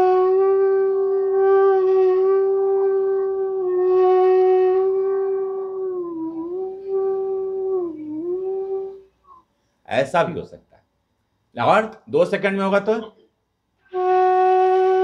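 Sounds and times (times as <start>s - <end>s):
bamboo flute long note: 0.0s - 9.4s, 13.9s - 15.0s.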